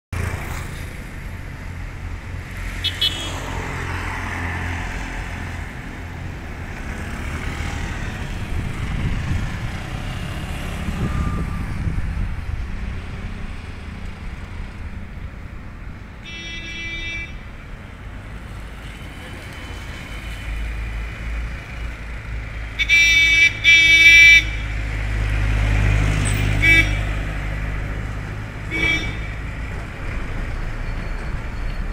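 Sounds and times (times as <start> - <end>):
road traffic: 0.1 - 31.9
vehicle horns honking: 2.8 - 3.5, 16.2 - 17.5, 22.8 - 24.8, 26.4 - 27.2, 28.7 - 29.5.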